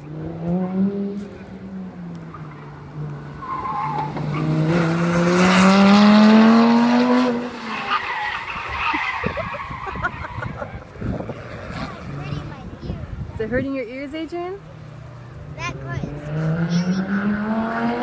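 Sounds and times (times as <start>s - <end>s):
sports car engine accelerating: 0.0s - 8.2s, 14.7s - 18.0s.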